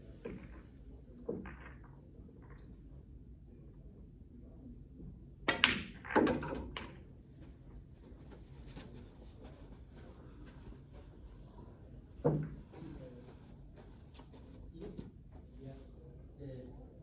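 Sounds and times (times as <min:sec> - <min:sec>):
snooker balls clicking: 0:00.2 - 0:02.9, 0:05.5 - 0:07.1.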